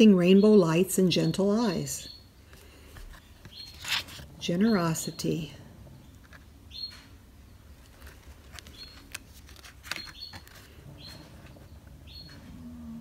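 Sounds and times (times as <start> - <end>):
cards tapping and sliding: 7.8 - 10.8.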